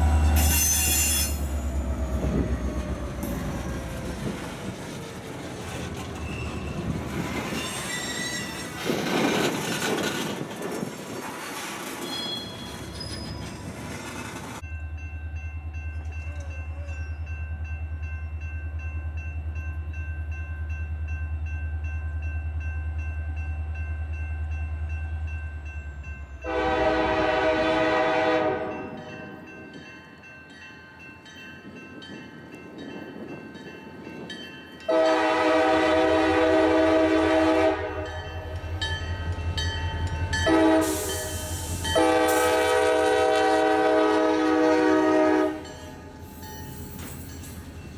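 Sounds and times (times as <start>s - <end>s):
diesel locomotive rumble: 0.0s - 14.6s
train air horn blasts: 0.3s - 1.5s, 26.4s - 29.1s, 34.9s - 38.2s, 40.4s - 45.8s.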